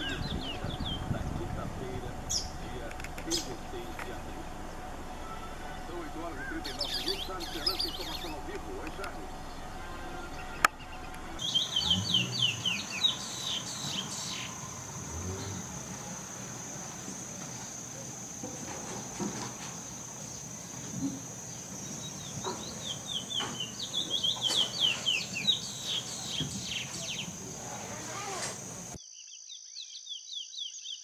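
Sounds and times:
finch singing whistled notes: 0:05.2 - 0:08.4, 0:10.3 - 0:14.8, 0:21.5 - 0:27.4.

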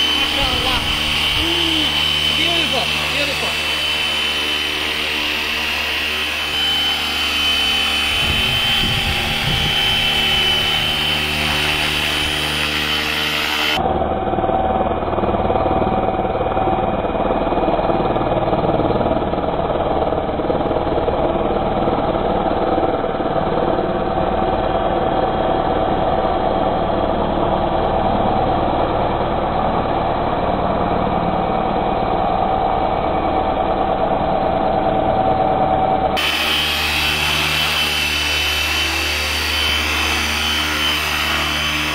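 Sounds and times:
rc helicopter motor whine: 0:00.0 - 0:41.9.

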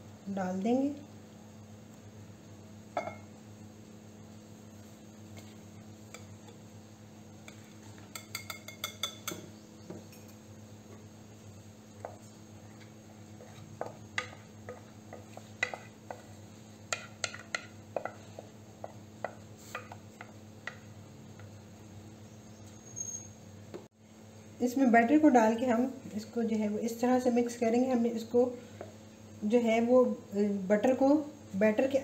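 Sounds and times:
steady low hum: 0:00.0 - 0:32.0
utensils clinking on a ceramic bowl: 0:07.5 - 0:09.5.

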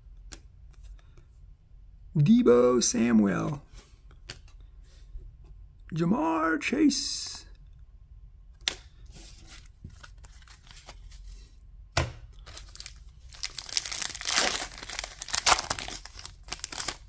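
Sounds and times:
wrapper crinkling and tearing: 0:12.4 - 0:17.0.

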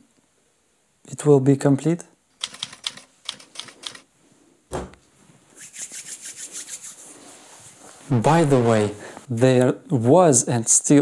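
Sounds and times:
scratchy clicks: 0:02.4 - 0:04.1.

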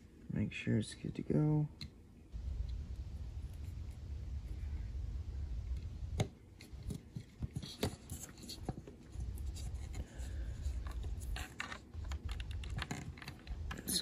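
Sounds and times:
low rumble: 0:02.4 - 0:06.2
cable plug clicks and scrapes: 0:10.6 - 0:13.9.

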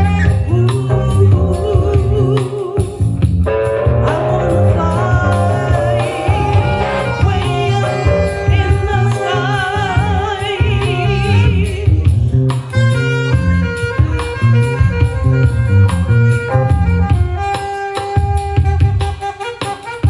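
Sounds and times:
woman singing with vibrato: 0:00.0 - 0:03.1, 0:04.0 - 0:12.3
soul-jazz backing music: 0:00.0 - 0:20.0.

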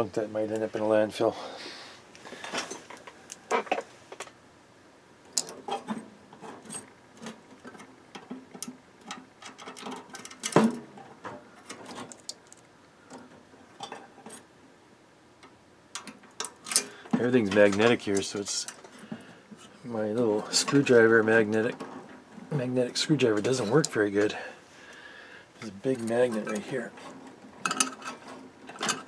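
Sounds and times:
metal parts clicking and rattling: 0:05.3 - 0:14.4, 0:16.0 - 0:19.0, 0:25.6 - 0:29.0.

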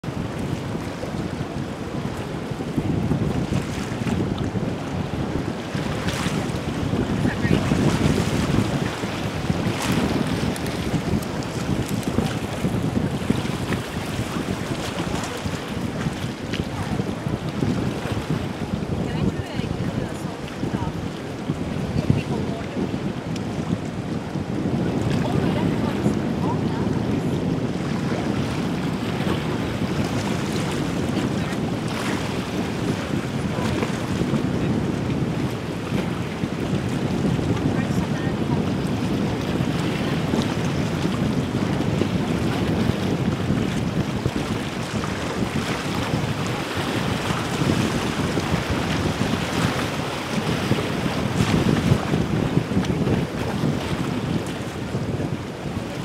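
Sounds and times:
low rumble of boat motor: 0:00.0 - 0:50.8
waves washing: 0:00.0 - 0:56.0
wind buffeting microphone: 0:00.0 - 0:56.0
water washing: 0:05.9 - 0:17.3.

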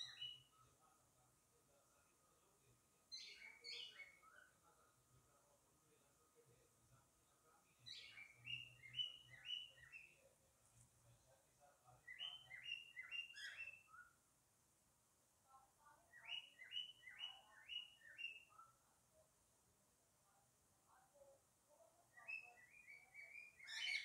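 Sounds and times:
cockatiel chirping: 0:00.0 - 0:00.4, 0:12.0 - 0:14.1, 0:22.2 - 0:24.0.

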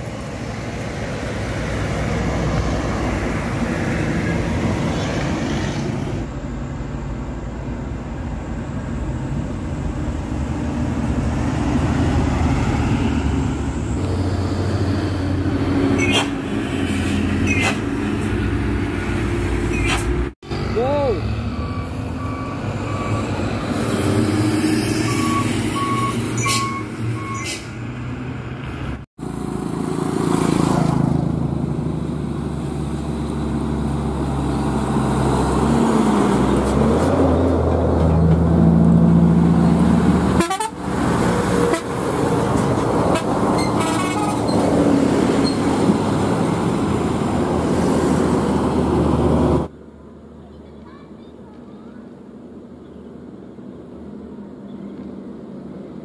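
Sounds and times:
tractor-trailer engine passing: 0:00.0 - 0:50.7
diesel truck engines driving past: 0:00.0 - 0:56.0
short beeps: 0:25.1 - 0:27.5.

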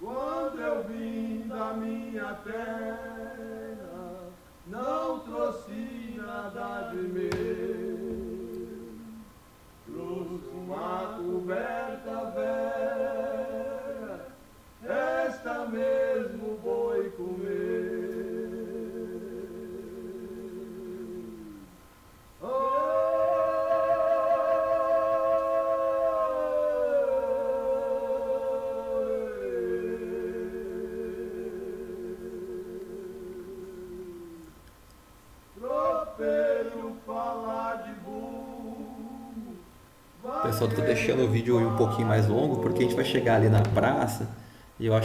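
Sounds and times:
person singing unaccompanied: 0:00.0 - 0:21.8, 0:22.4 - 0:34.6, 0:35.6 - 0:44.2.

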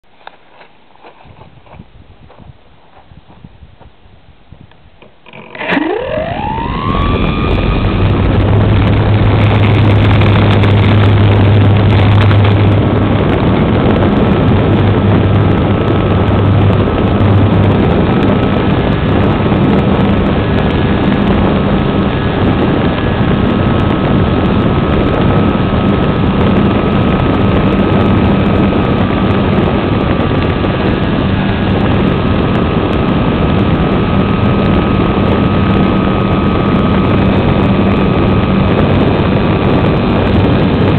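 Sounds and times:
wind and propeller rush: 0:00.1 - 0:40.9
electric motor whine: 0:05.1 - 0:25.8.

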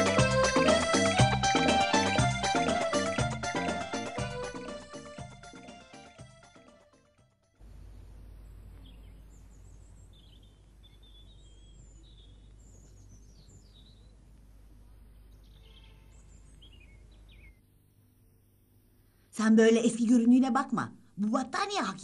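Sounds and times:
steady low rumble: 0:07.6 - 0:15.3
small birds chirping: 0:07.7 - 0:18.3.

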